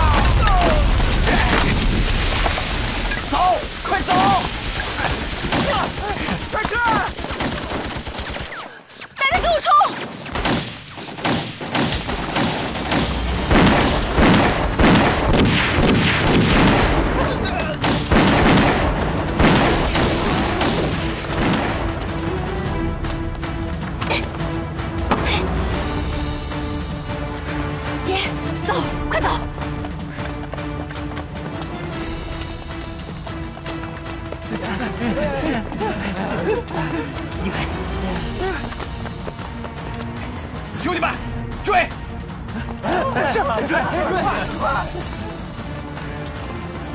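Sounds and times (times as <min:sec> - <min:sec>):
rifle and pistol shots: 0:10.2 - 0:17.0, 0:17.8 - 0:21.8
footsteps of people running: 0:21.2 - 0:24.7, 0:29.6 - 0:40.8, 0:42.2 - 0:46.9.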